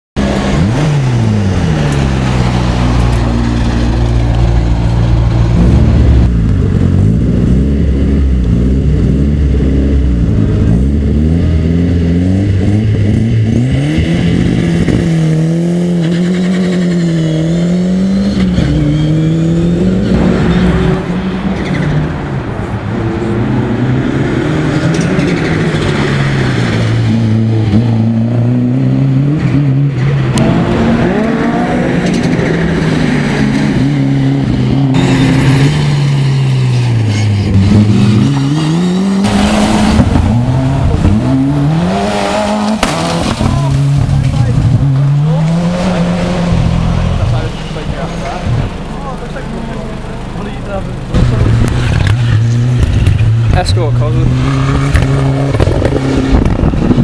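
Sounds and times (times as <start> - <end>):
rally car engines revving hard: 0.2 - 57.0
engine popping and crackling: 29.9 - 57.0.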